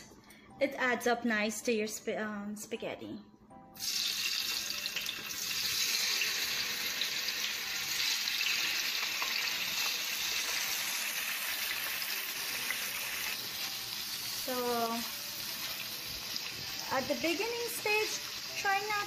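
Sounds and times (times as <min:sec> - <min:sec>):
tofu sizzling in frying pan: 0:03.8 - 0:19.0.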